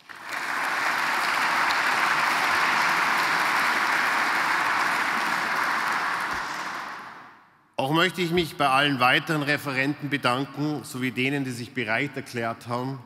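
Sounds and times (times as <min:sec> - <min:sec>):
audience applause: 0:00.0 - 0:07.4.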